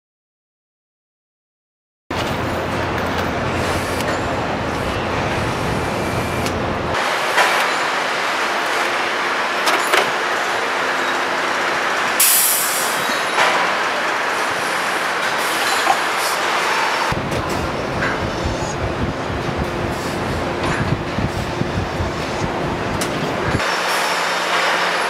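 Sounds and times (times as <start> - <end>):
hiss of air: 12.2 - 13.2
knocks and clanks: 13.0 - 13.9.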